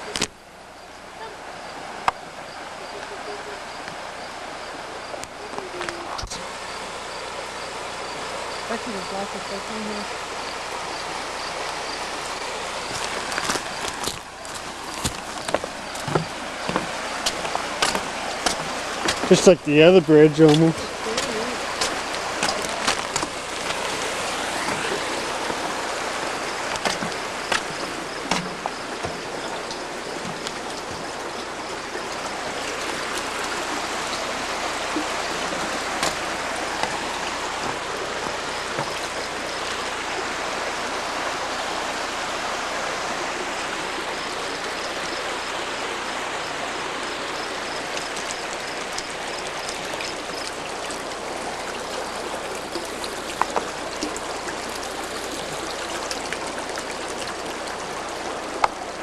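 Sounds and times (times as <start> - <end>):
stream water over rocks: 0.0 - 59.0
sharp knocks: 26.8 - 29.2.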